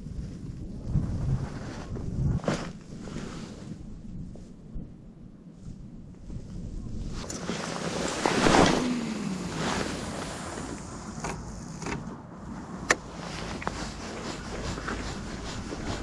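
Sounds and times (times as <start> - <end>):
fishing rod swish: 7.4 - 11.2.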